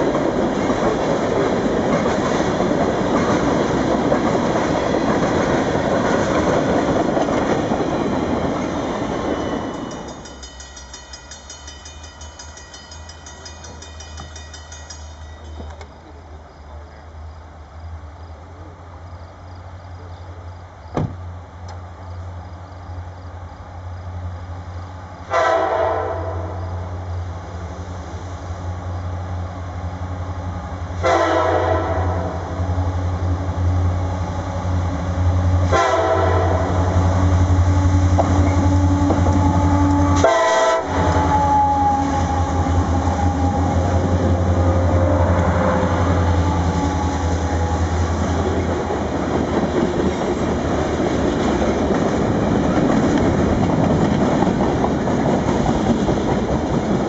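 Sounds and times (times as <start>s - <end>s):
diesel locomotive engine rumble: 0.0s - 57.0s
train horn blasts: 25.3s - 26.8s, 31.0s - 32.6s, 35.6s - 48.4s.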